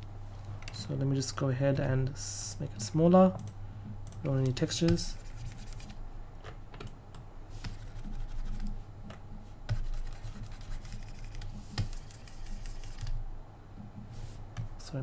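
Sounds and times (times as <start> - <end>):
steady low hum: 0.0 - 15.0
scratchy rubbing: 5.1 - 6.0, 7.6 - 8.8, 9.7 - 13.1.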